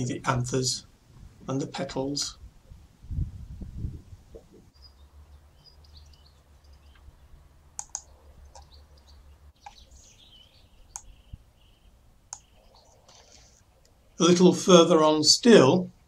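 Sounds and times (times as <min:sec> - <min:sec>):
small birds chirping: 0:04.4 - 0:14.4
sharp clicks: 0:07.7 - 0:08.8, 0:09.6 - 0:09.8, 0:10.9 - 0:11.2, 0:12.3 - 0:14.0.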